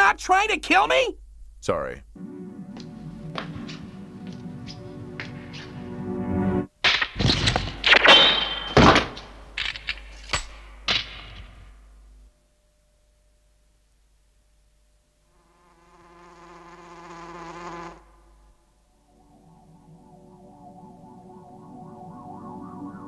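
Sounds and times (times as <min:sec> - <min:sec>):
housefly buzzing: 0:15.2 - 0:20.5.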